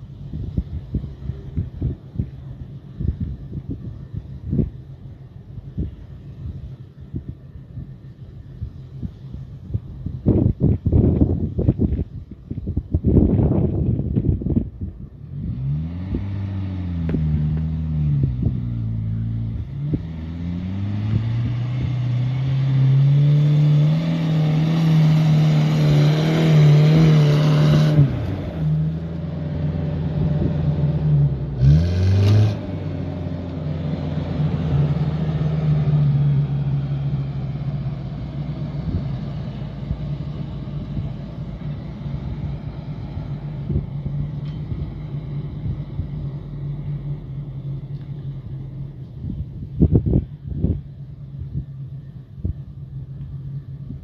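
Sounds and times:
engine revving under load: 0:13.1 - 0:54.0.

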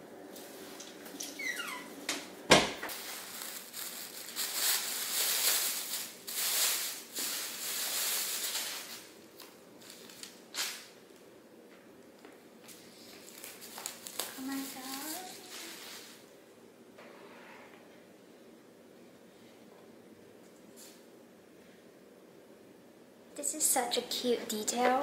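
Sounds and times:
plastic bag rustling: 0:02.9 - 0:11.0, 0:12.9 - 0:16.3.

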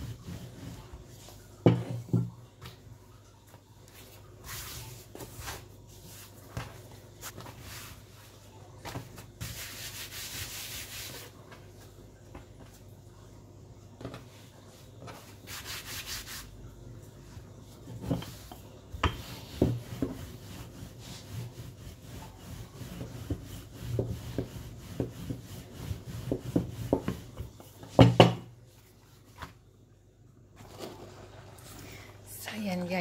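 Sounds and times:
hands rubbing dough: 0:00.0 - 0:01.8, 0:03.5 - 0:12.9, 0:14.1 - 0:29.6
dough thump: 0:01.6 - 0:02.8, 0:18.0 - 0:20.3, 0:22.9 - 0:28.5.

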